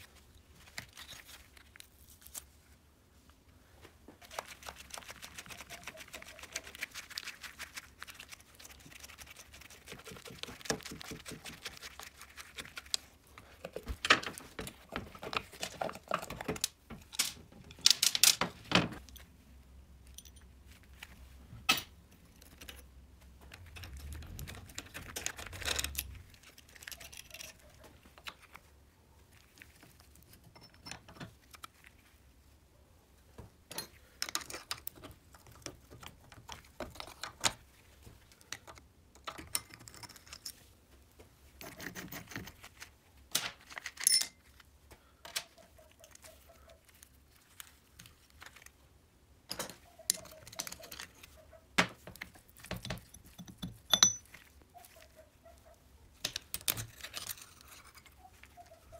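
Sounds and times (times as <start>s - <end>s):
metal parts and tools clinking: 13.9s - 19.3s, 20.0s - 20.6s, 23.5s - 27.6s, 30.4s - 31.3s, 43.7s - 44.5s, 49.5s - 51.3s, 52.6s - 54.5s.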